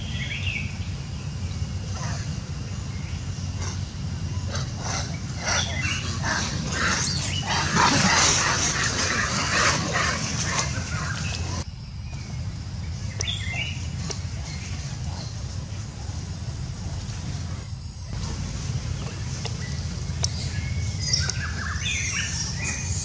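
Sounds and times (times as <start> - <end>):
steady low hum: 0.0 - 23.0
macaques squealing and barking: 3.6 - 11.6.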